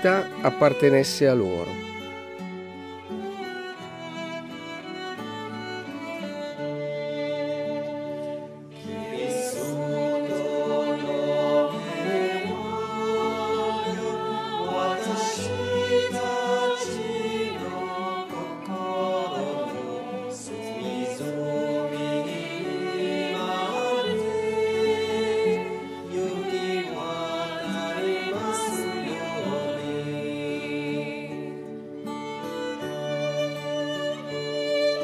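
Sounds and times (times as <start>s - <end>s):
women singing together: 8.9s - 31.3s.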